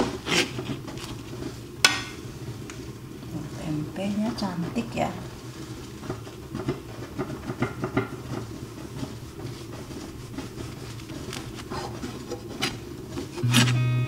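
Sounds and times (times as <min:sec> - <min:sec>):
low steady hum: 0:13.1 - 0:14.0.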